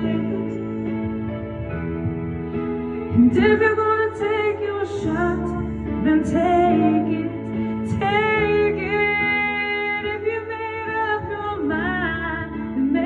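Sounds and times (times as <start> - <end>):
woman singing a slow ballad: 0.0 - 1.6, 3.1 - 13.0
backing track: 0.0 - 13.0.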